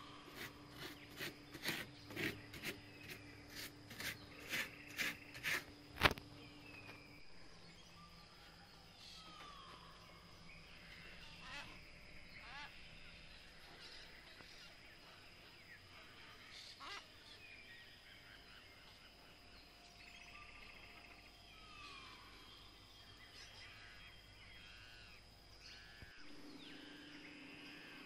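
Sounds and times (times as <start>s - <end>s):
birds chirping: 0.0s - 28.0s.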